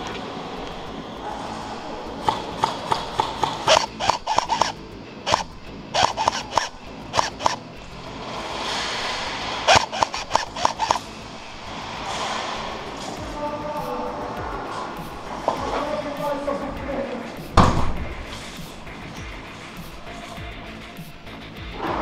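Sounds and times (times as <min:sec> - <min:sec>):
airsoft guns firing bursts: 0:02.2 - 0:07.6, 0:09.7 - 0:11.0.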